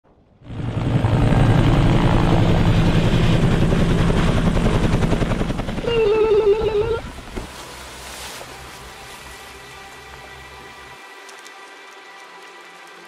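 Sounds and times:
helicopter rotor chopping: 0.4s - 7.5s.

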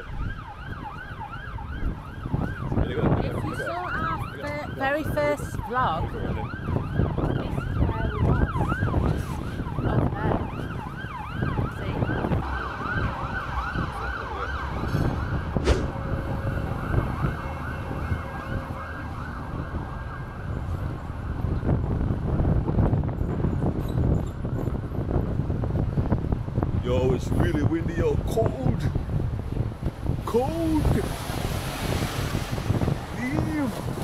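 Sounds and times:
emergency siren yelping: 0.0s - 22.2s
traffic rumble: 0.0s - 34.0s
wind rumble: 0.0s - 34.0s.

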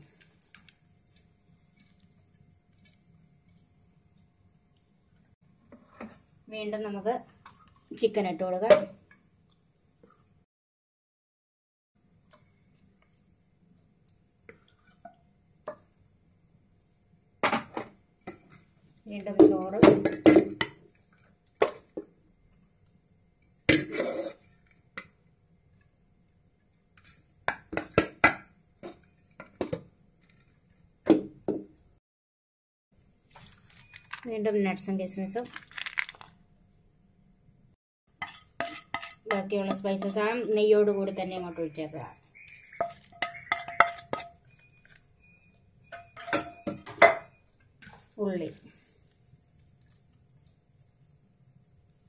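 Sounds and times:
spoon scraping pot: 23.8s - 24.7s, 38.2s - 41.5s, 42.3s - 48.1s
metal frying pan clinking and scraping: 42.8s - 44.5s.

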